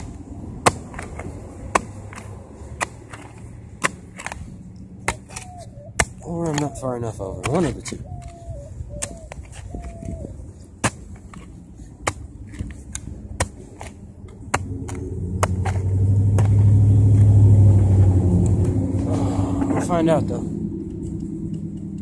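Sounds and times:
passing vehicle rumble: 0.0s - 9.0s, 13.9s - 22.0s
digging tool chopping soil: 0.0s - 17.4s.

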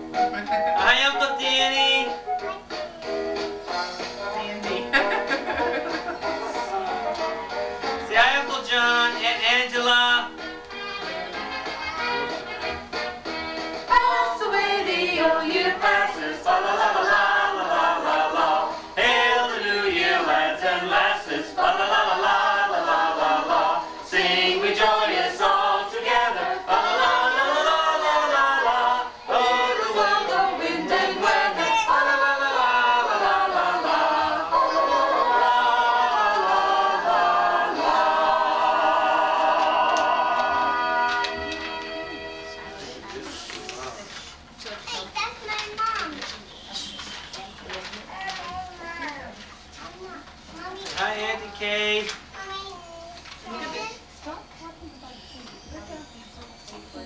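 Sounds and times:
group singing a carol unaccompanied: 13.9s - 43.5s.

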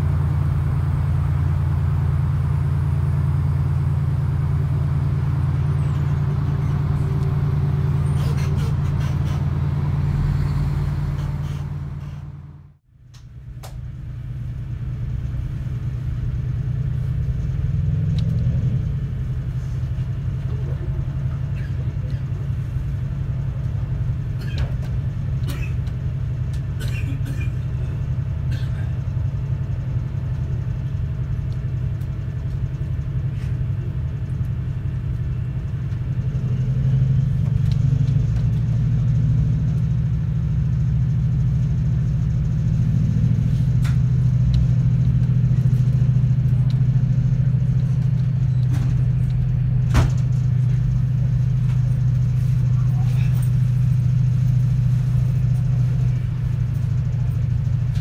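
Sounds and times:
diesel locomotive engine droning: 0.0s - 58.0s
train coach clicks and creaks: 8.0s - 9.9s, 10.9s - 12.4s, 23.6s - 29.2s, 43.0s - 58.0s.

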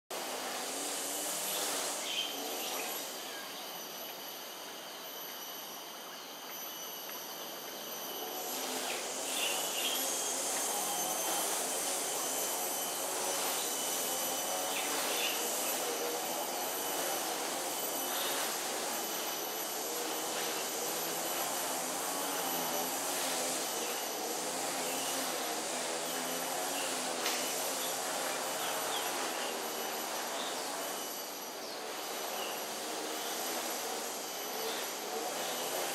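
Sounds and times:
high insect drone: 0.1s - 35.9s
distant engine noise: 0.2s - 4.9s.

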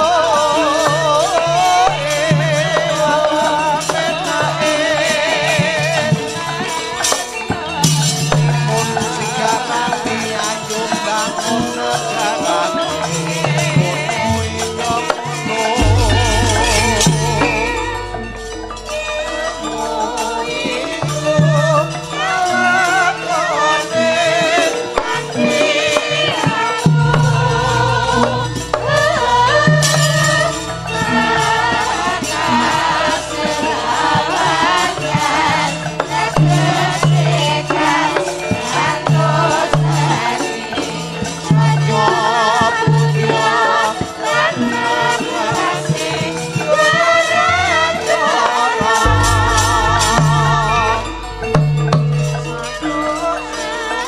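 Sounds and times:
woman singing ornamented vocal: 0.0s - 54.0s
gamelan playing: 12.2s - 54.0s
short low repeating notes: 15.8s - 22.1s, 49.0s - 53.8s.

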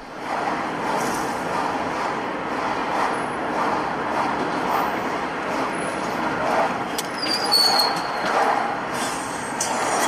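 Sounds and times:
car road and engine noise: 0.0s - 10.0s
short high squeal: 7.2s - 8.2s.

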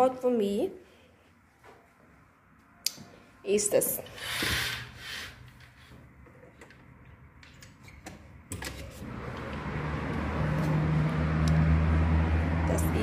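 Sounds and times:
low hum of passing vehicles: 0.0s - 13.0s
city street traffic: 4.8s - 13.0s.

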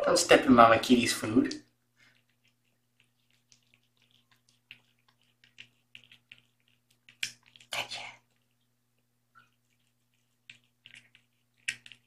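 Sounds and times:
cat chewing wet food: 1.6s - 12.0s.

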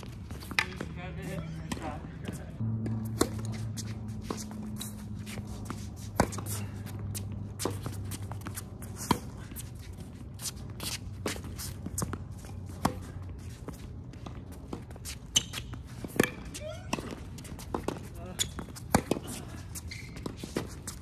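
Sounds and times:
tennis ball bouncing: 0.0s - 9.6s, 10.3s - 21.0s
shoes scuffing on court: 0.0s - 21.0s
tennis ball hit by racket: 2.7s - 9.3s, 16.0s - 18.0s.

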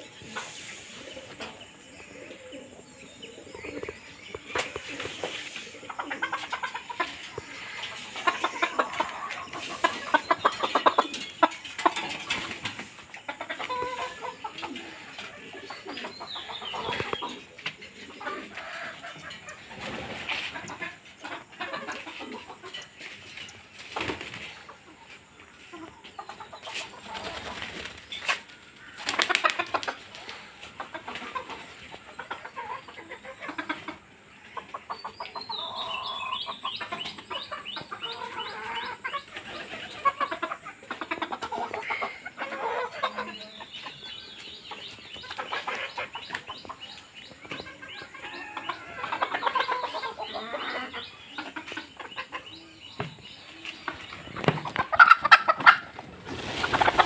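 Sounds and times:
chickens clucking: 0.0s - 57.0s
wings flapping: 29.0s - 30.4s, 55.5s - 57.0s.

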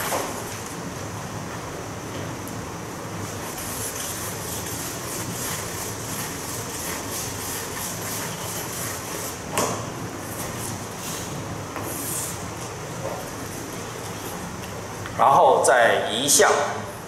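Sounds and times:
eraser wiping chalkboard: 3.2s - 9.6s, 10.2s - 12.5s.

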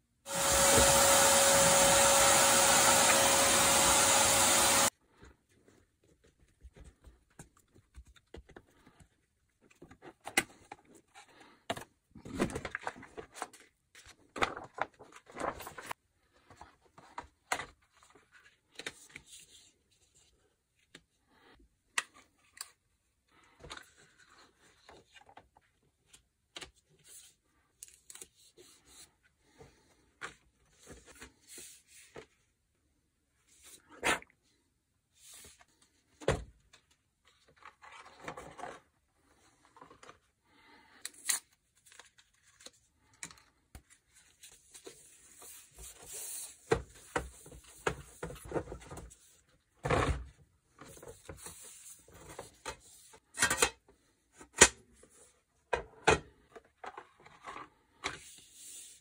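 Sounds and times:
electric blower humming: 0.3s - 4.9s
knocks and rustles of handling: 5.0s - 21.2s, 41.6s - 58.4s.

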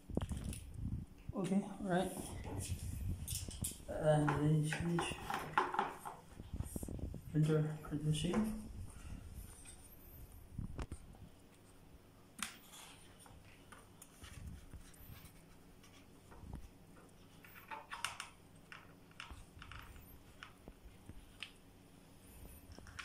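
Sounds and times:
plastic parts clicking and knocking: 3.3s - 6.2s, 17.4s - 20.6s.

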